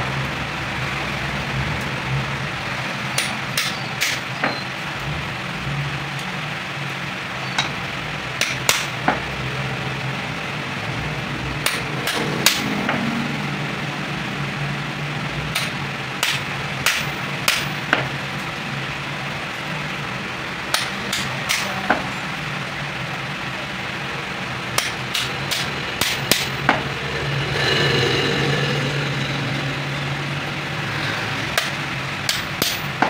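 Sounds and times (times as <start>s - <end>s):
hammer striking metal punch: 3.1s - 4.6s, 8.4s - 9.2s, 11.6s - 13.0s, 15.5s - 18.1s, 20.7s - 22.1s, 24.7s - 27.3s, 31.6s - 33.0s
steady low hum: 4.8s - 33.0s.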